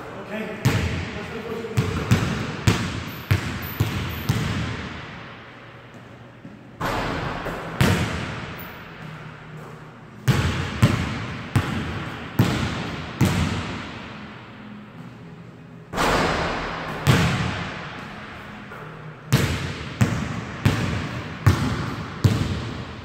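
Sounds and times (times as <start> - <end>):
basketball bouncing on hardwood floor: 1.8 - 4.9, 10.3 - 13.8, 19.3 - 22.8.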